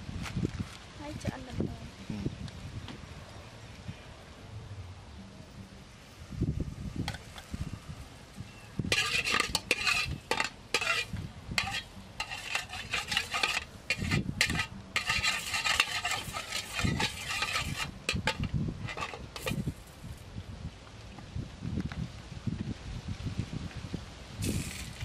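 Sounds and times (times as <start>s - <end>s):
metal ladle scraping a pot: 8.9s - 19.8s, 24.4s - 25.0s.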